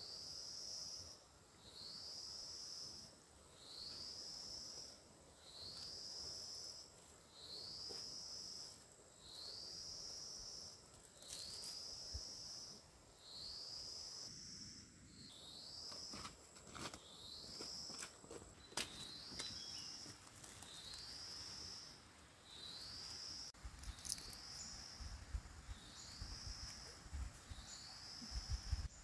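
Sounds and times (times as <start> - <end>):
footsteps rustling through grass: 16.1 - 21.6
insect buzzy high call: 19.2 - 29.0.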